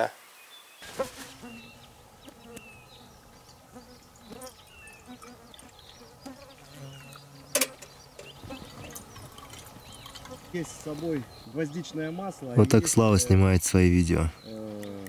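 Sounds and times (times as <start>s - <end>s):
birds chirping: 0.0s - 15.0s
insect buzzing: 0.8s - 11.6s.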